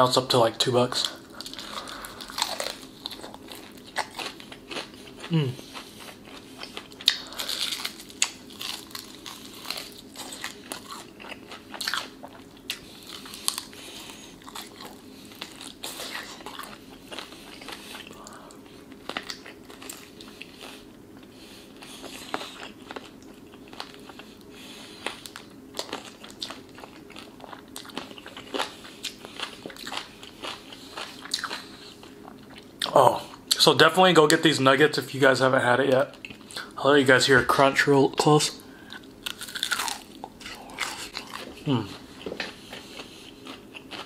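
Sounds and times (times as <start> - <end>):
faint steady hum: 0.0 - 44.0
chewing crispy fried chicken: 0.2 - 34.5, 35.2 - 36.8, 37.6 - 44.0
breading crunching: 1.0 - 20.8, 25.0 - 32.7, 38.9 - 44.0.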